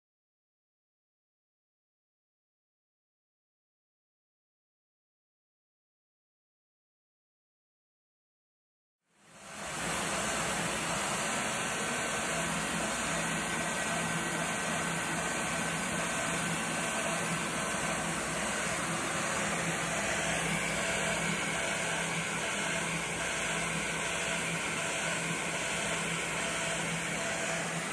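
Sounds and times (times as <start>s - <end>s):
router spindle whirring: 9.6s - 27.9s.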